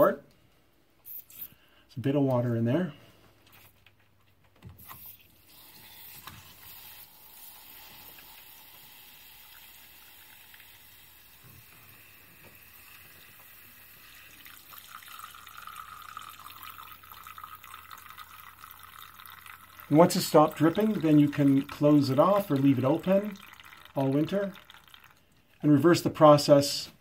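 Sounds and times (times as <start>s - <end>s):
water trickling into a cup: 5.4s - 26.4s.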